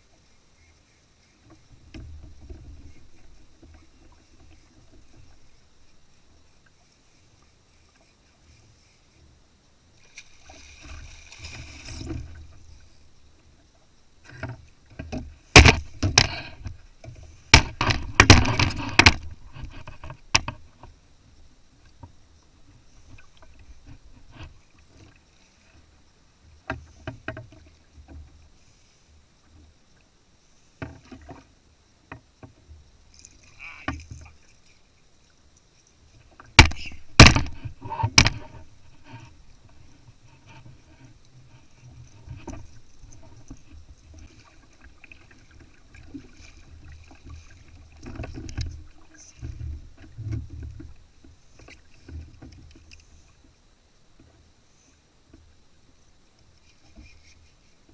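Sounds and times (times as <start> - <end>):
fishing gear knocking on kayak: 15.6 - 16.4, 17.6 - 19.3, 36.6 - 38.6.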